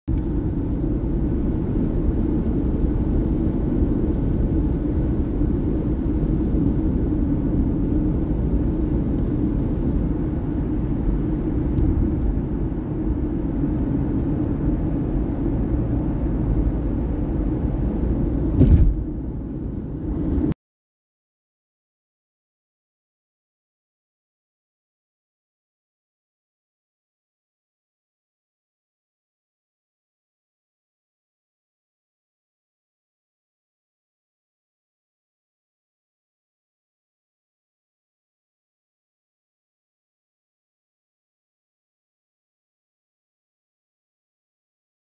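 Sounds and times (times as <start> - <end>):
car cabin road rumble: 0.1 - 20.6
brief thump: 18.6 - 19.1.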